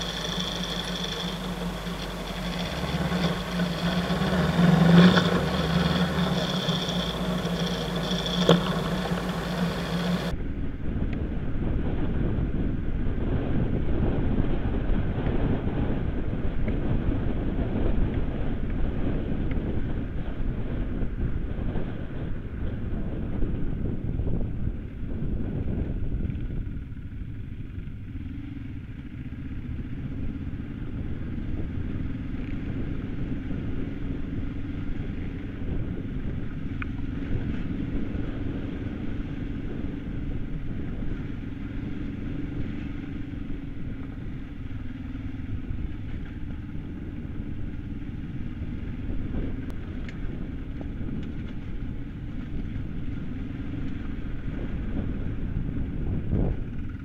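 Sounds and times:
tyres on gravel: 0.0 - 10.3
motorcycle engine running: 0.0 - 57.0
wind rumble: 0.0 - 57.0.

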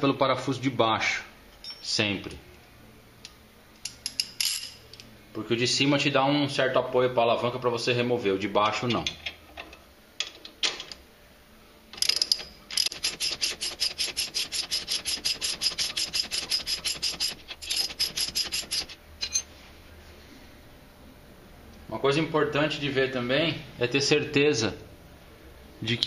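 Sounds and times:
socket ratchet clicking: 12.0 - 19.0.

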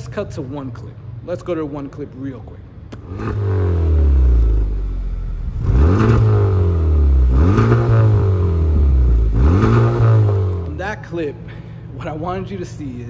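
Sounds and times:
car engine revving: 2.9 - 10.8.

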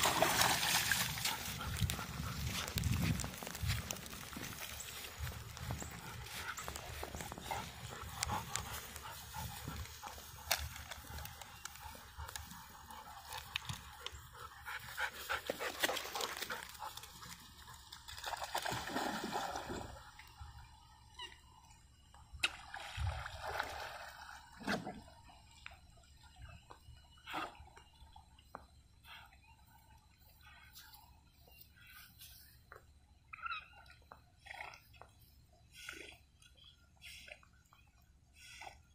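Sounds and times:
rustling through wet grass: 0.0 - 14.0
dogs paddling in water: 0.0 - 38.9.

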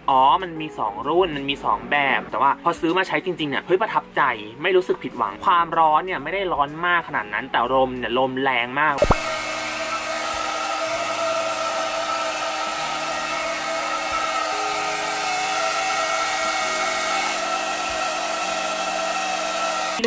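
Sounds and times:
hair dryer running: 9.0 - 20.0.

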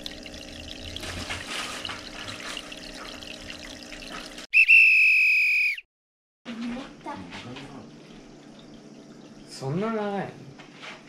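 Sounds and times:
aquarium water bubbling: 0.0 - 4.5, 7.6 - 10.3
whistle-like tone: 4.5 - 5.9.

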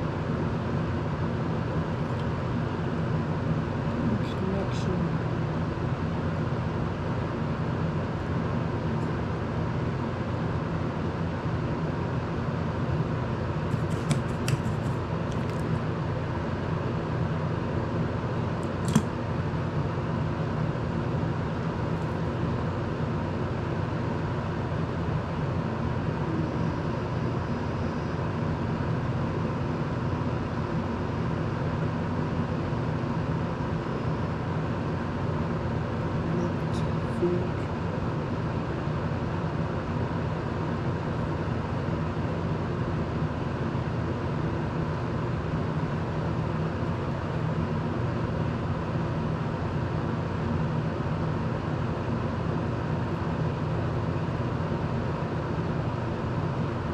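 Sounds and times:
electric desk fan whirring: 0.0 - 56.9
small sharp clicks: 18.6 - 19.1.

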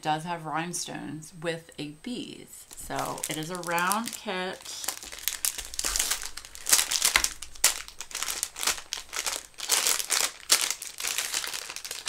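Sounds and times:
plastic wrapping crinkling: 2.6 - 12.0.

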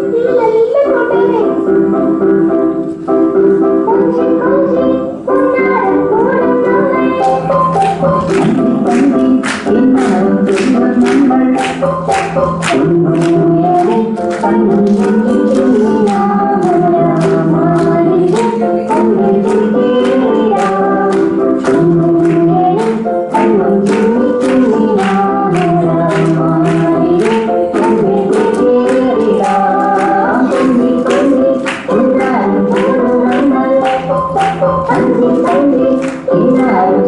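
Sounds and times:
instrumental backing with beat: 5.3 - 37.0
group singing: 8.2 - 37.0.

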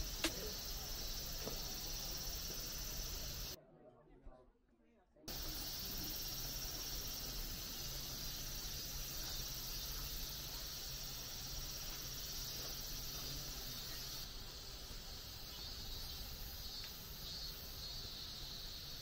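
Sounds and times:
high-pitched insect chorus: 0.0 - 3.6, 5.3 - 19.0.

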